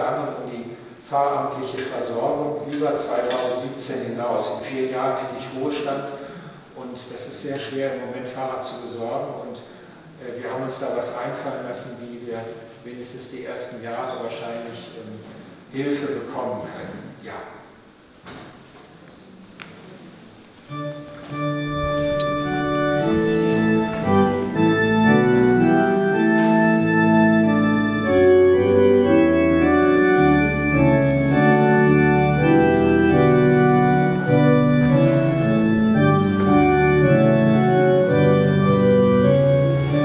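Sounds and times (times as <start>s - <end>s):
organ chords: 20.5s - 40.0s
low organ bass line: 20.7s - 40.0s.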